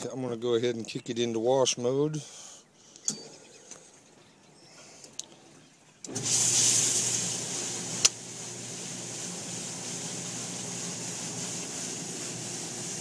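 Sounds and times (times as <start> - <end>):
dishwasher water spraying: 6.1 - 13.0.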